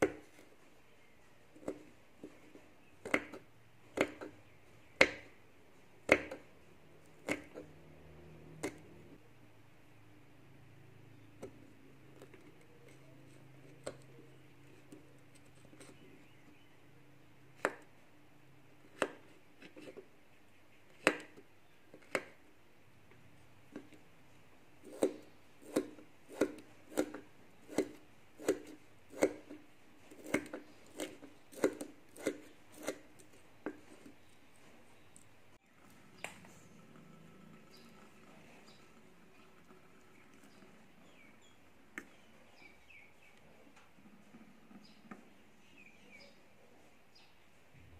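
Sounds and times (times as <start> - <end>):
cleaver chopping on wooden board: 5.0 - 5.3, 6.1 - 6.4, 7.2 - 7.6, 21.0 - 21.4, 24.9 - 34.0.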